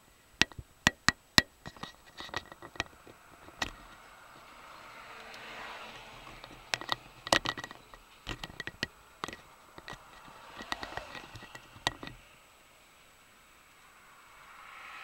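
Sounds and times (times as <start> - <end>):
faint cab noise: 0.0 - 15.0
sharp clicks and light knocks: 0.4 - 4.6, 5.2 - 12.3.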